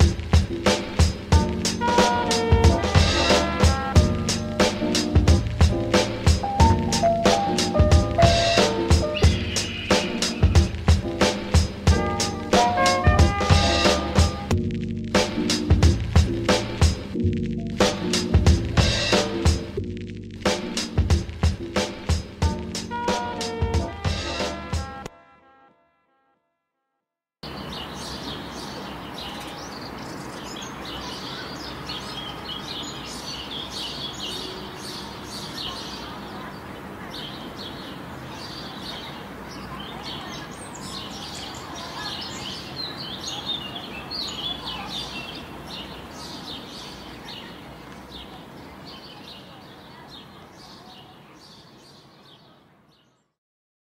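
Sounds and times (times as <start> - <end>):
small birds chirping: 0.0 - 14.5, 27.4 - 53.4.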